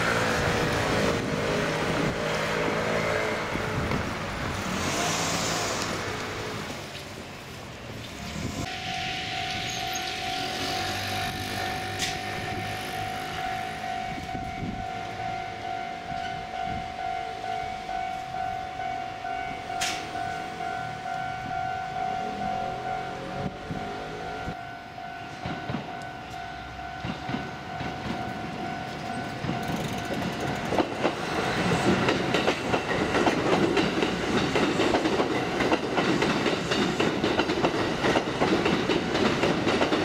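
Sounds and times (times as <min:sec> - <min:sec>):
street traffic: 0:00.0 - 0:40.0
wind noise: 0:00.1 - 0:05.1, 0:07.9 - 0:10.3, 0:14.0 - 0:15.0.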